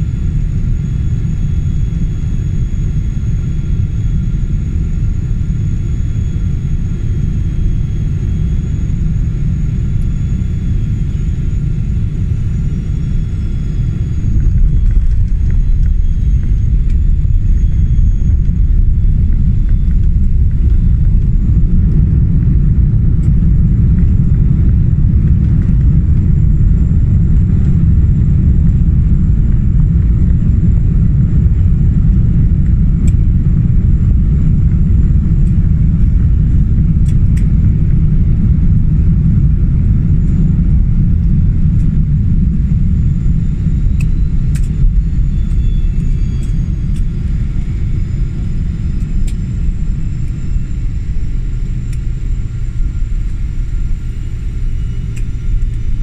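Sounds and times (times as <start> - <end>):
airplane rolling on runway rumble: 0.0 - 56.0
low hum: 0.0 - 56.0.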